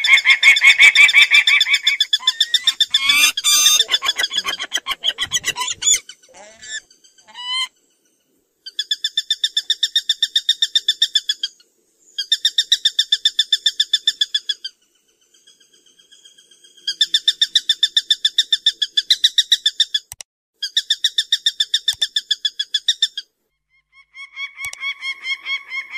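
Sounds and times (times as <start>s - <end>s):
falcon harsh repeated call: 0.0s - 7.7s
lower-pitched repeated bird call: 0.0s - 7.8s.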